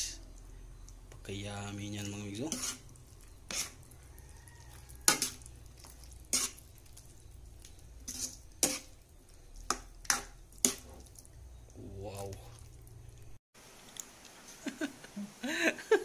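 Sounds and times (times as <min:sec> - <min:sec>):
faint sizzle: 0:00.0 - 0:16.0
spoon scraping and knocking wok: 0:01.9 - 0:09.0, 0:09.6 - 0:11.3.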